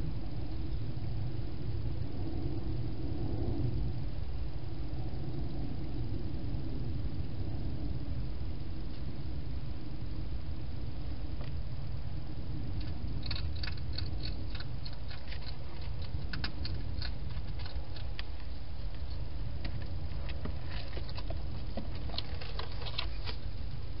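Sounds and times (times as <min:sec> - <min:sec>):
steady low rumble: 0:00.0 - 0:24.0
hedgehog crunching food: 0:12.8 - 0:23.4.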